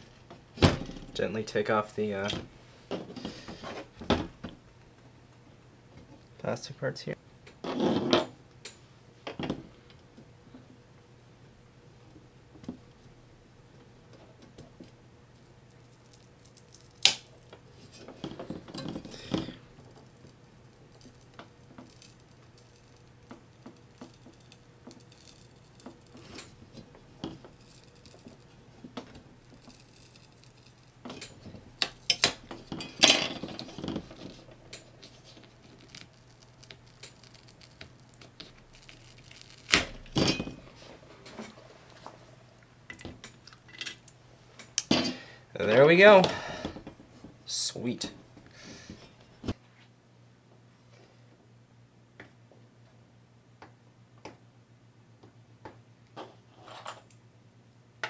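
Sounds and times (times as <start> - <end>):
plastic pieces clicking and clattering: 29.4 - 40.2.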